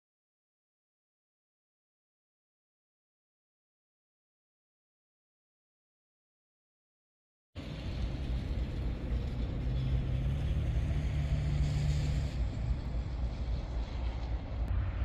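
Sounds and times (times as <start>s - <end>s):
diesel locomotive engine drone: 7.6s - 15.0s.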